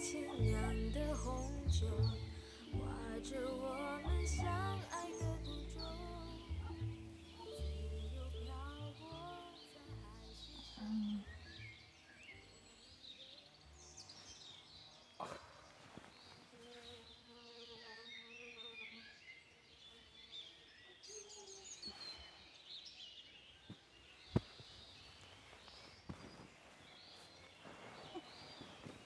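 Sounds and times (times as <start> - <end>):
faint bird chirps: 0.0 - 29.0
insect buzzing: 16.4 - 20.1.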